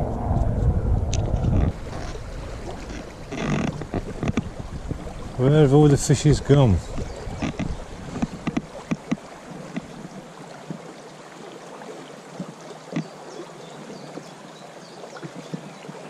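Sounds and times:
river water running over riffle: 1.1 - 16.0
short ticks and splashes: 1.9 - 11.0.

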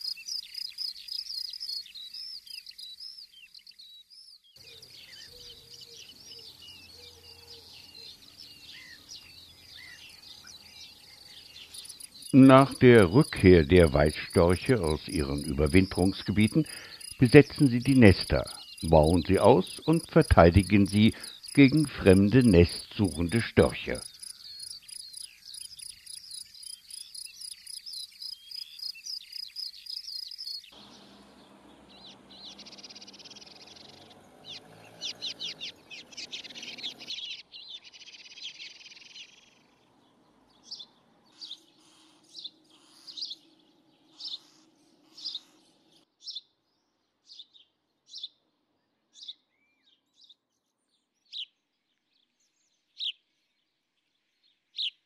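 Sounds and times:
small bird chirping: 0.0 - 55.0
insect chirring: 11.2 - 30.7.

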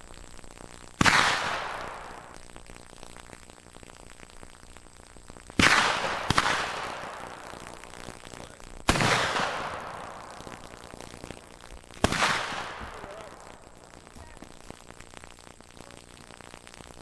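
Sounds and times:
rifle shots echoing: 8.9 - 10.8, 12.0 - 14.5.

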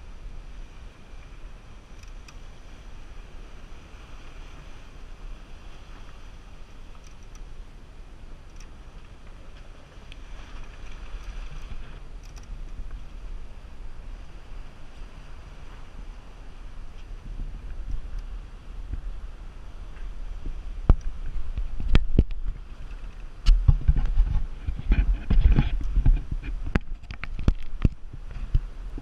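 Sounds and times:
water rushing along hull: 0.0 - 29.0
wind buffeting microphone: 0.0 - 29.0
light clicks: 6.9 - 7.5, 8.4 - 8.8, 12.2 - 13.0.

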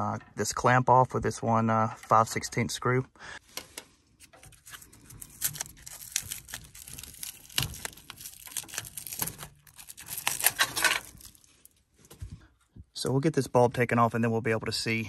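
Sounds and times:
insulation wrap crinkling and tearing: 4.2 - 11.9.

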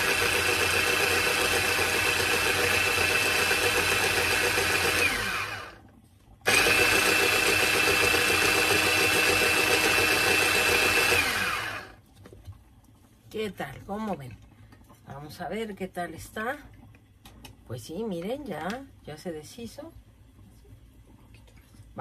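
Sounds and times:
electric grinder motor whining: 0.0 - 5.8, 6.5 - 12.0.

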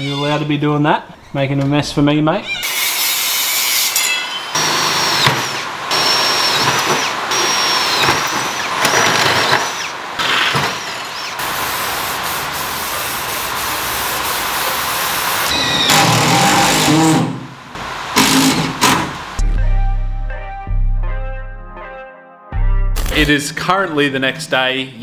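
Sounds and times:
cordless drill boring: 2.6 - 11.6
angle grinder cutting steel: 2.7 - 17.3
steady spray hiss: 11.2 - 15.5.

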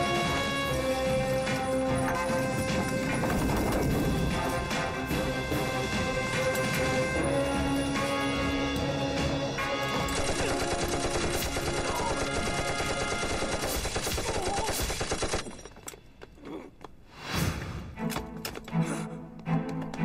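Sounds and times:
background music: 0.0 - 14.0, 15.4 - 20.0
rifle and machine-gun fire: 10.1 - 15.6.

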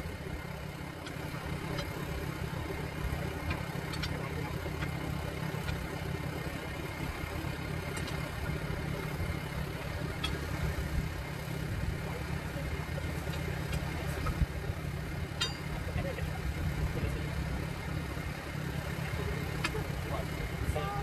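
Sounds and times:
steady low rumble: 0.0 - 21.0
metal clinks: 15.3 - 16.0.

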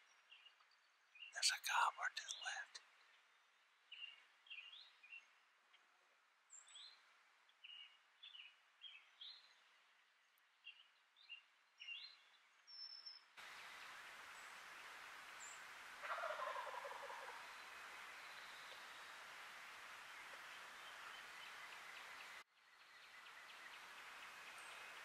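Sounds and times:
turkey gobbling: 16.0 - 17.5.

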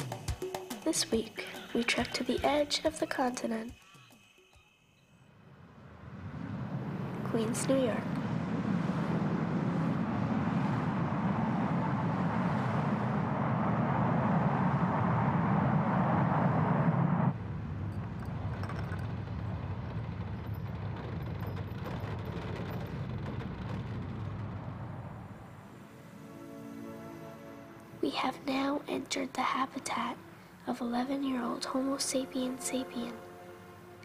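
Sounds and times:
jet airliner passing overhead: 5.4 - 30.6.

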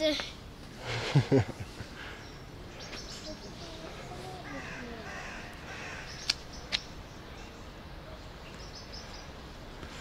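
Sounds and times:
small birds chirping: 1.6 - 10.0
sharp clicks: 6.1 - 6.9.

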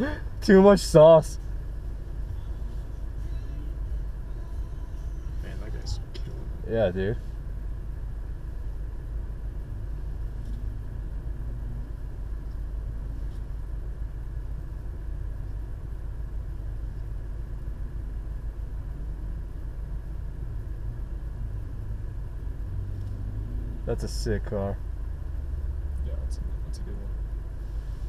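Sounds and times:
vehicle engine idling: 0.0 - 28.0.

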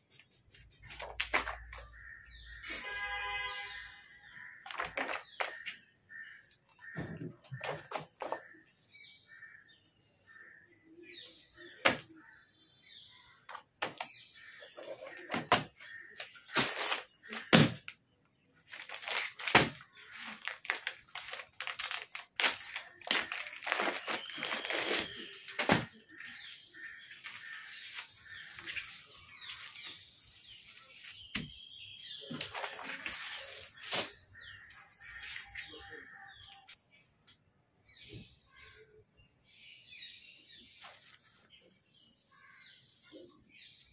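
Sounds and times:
paper pages rustling: 0.6 - 1.9, 4.6 - 5.8, 18.7 - 31.4, 32.3 - 35.6
plastic bag crinkling: 18.7 - 31.2.

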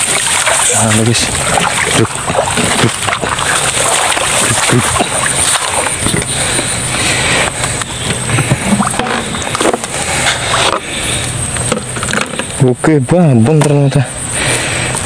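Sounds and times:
rustling grass: 0.0 - 11.2
water sloshing in a pipe: 0.0 - 12.5.

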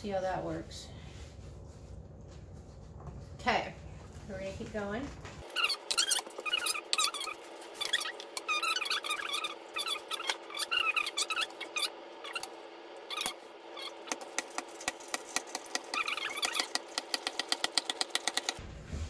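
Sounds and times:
crank squeaking: 5.4 - 18.6
rapid clicking: 14.0 - 18.6.

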